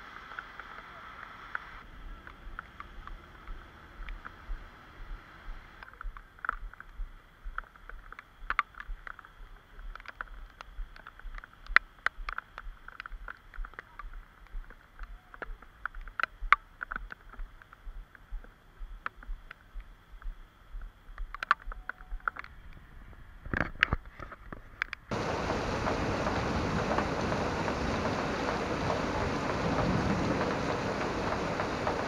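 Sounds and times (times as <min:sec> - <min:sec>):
faint steady hiss: 0:00.0 - 0:32.0
footsteps on wet pavement: 0:02.0 - 0:21.8
sharp ticks: 0:05.5 - 0:22.5.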